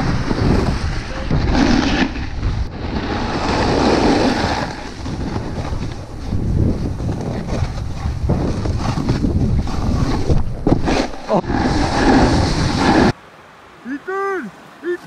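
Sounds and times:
snowboard scraping over snow: 0.0 - 13.2
wind buffeting microphone: 0.0 - 13.2.

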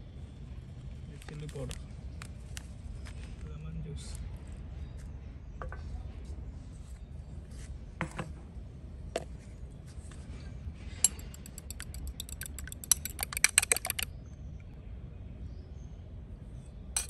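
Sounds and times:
utensil clinking against bowl: 11.0 - 14.1.

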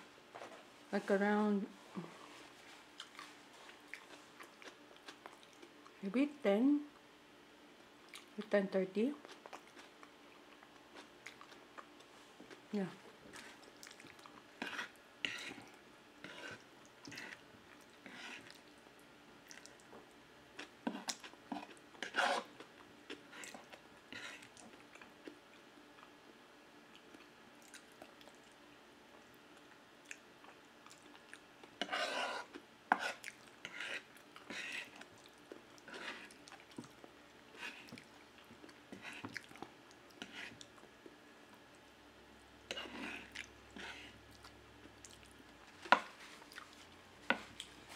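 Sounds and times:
chewing and slurping spaghetti: 30.1 - 40.8.

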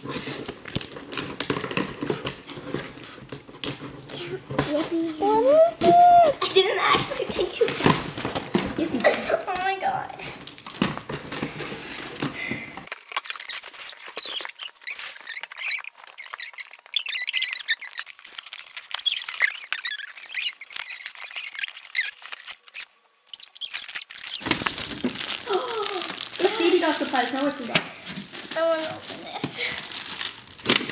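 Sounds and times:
cardboard rustling and cutting: 0.4 - 9.7, 10.4 - 30.9
sped-up squeaky voices: 14.3 - 24.4.

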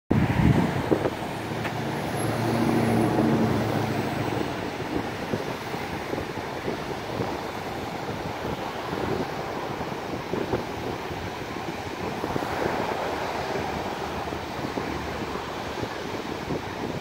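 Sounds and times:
breaking surf: 0.1 - 17.0
low engine-like hum: 0.1 - 17.0
wind buffeting microphone: 0.1 - 17.0.

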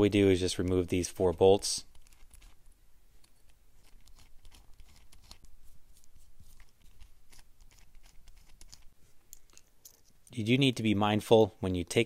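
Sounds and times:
small clicks and scratches of driver: 1.9 - 10.2.

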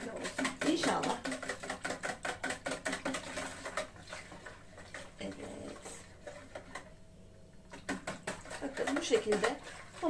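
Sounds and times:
whisk clicking in plastic bowl: 0.0 - 6.9, 7.7 - 10.0.

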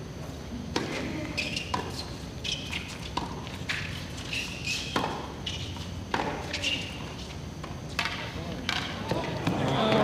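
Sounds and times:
shoes squeaking on court: 0.2 - 10.0
tennis ball bouncing: 0.7 - 10.0
tennis ball struck by rackets: 4.8 - 5.3, 6.1 - 6.6.

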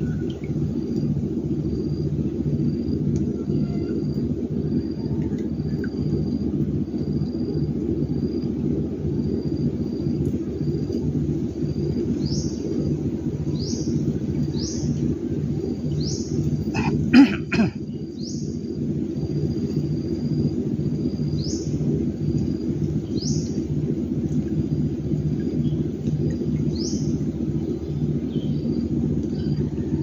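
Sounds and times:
low pulsing drone: 0.0 - 30.0
man coughing: 16.7 - 17.8.

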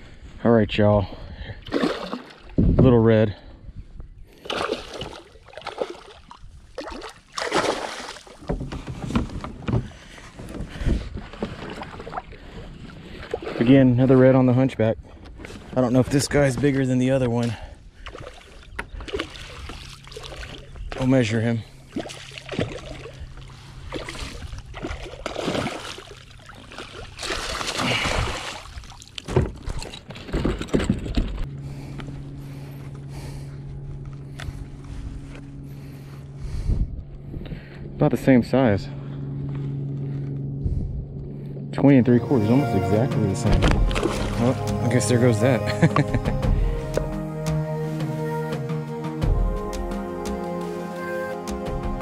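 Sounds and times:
steady low hum: 0.0 - 52.0
water splashing around kayak: 1.6 - 2.8, 4.3 - 14.2, 15.1 - 30.4, 42.2 - 45.8
knocks and bumps on a kayak: 8.4 - 11.8.

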